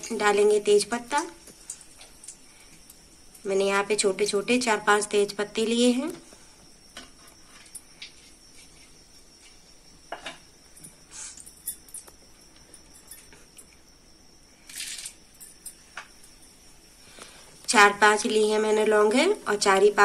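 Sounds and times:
oil sizzling with crackles: 0.0s - 10.0s
spices dropped into hot oil: 1.4s - 3.5s.

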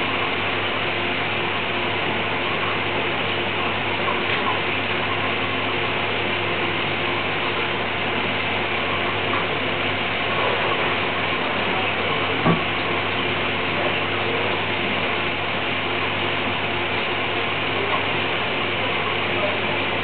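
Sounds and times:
machine hum with hiss: 0.0s - 20.0s.

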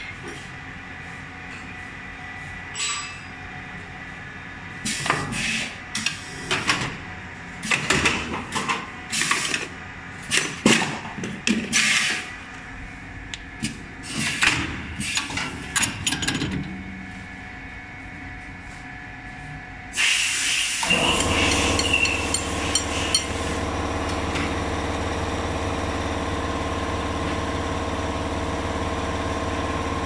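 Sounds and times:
machine hissing: 20.0s - 23.6s
machine hum: 20.8s - 30.0s.

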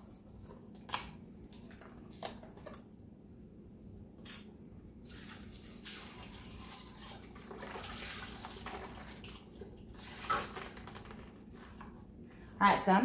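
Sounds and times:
broth pouring and splashing: 5.0s - 11.8s.

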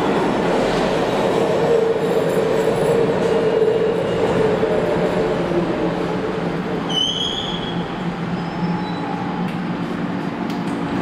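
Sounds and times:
subway train wheels and motors rumbling: 0.0s - 11.0s
train brakes squealing: 6.9s - 9.4s.

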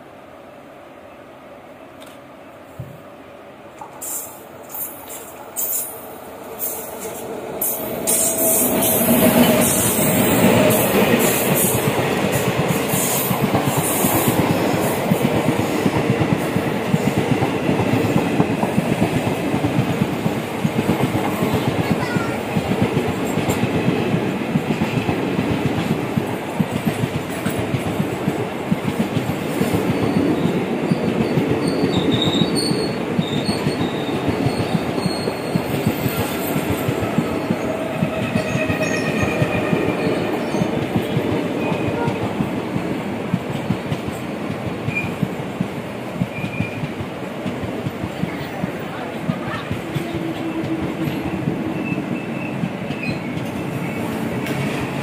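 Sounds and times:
train wheels rumbling and clacking: 3.8s - 55.0s.

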